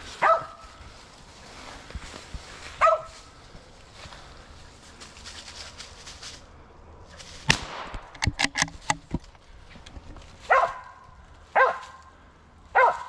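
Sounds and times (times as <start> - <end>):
dog barking: 0.2 - 0.6, 2.8 - 3.2, 10.5 - 11.0, 11.6 - 12.0, 12.7 - 13.0
gunshot: 7.5 - 8.4
sharp clicks and rattles: 7.5 - 10.3.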